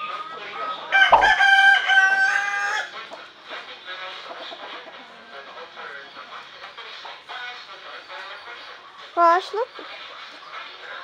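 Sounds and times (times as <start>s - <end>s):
rooster crowing: 0.9s - 2.9s.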